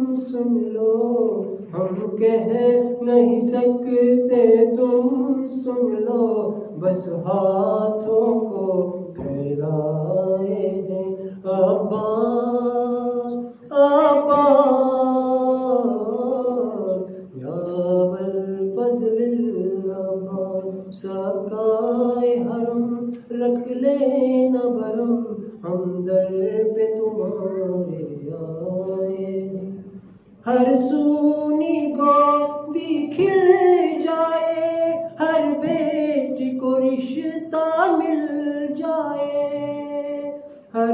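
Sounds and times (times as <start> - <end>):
man chanting unaccompanied: 0.0 - 40.9
breaths: 29.8 - 30.4, 40.4 - 40.8.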